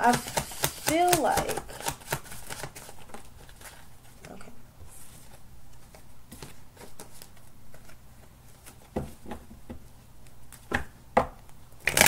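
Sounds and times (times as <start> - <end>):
cards tapping and flicking: 0.0 - 3.8.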